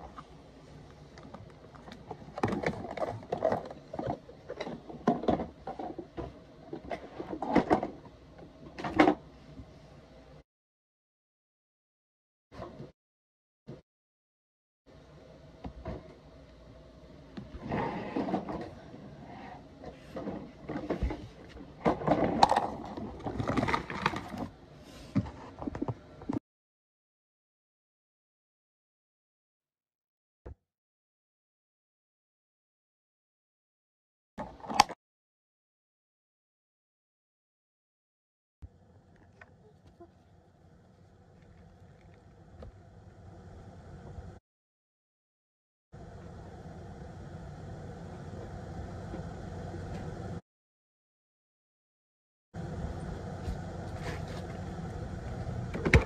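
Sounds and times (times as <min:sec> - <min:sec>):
plastic toys clattering: 0:21.8 - 0:24.5.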